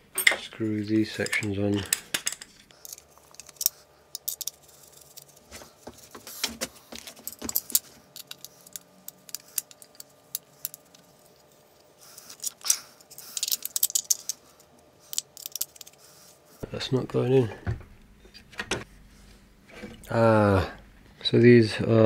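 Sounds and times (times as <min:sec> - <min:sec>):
screws rattling against plastic: 0:12.2 - 0:14.4, 0:15.1 - 0:16.0.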